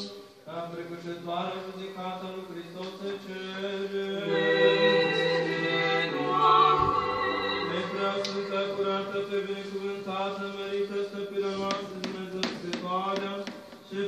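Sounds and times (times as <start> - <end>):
choir chanting long held notes: 4.2 - 9.2.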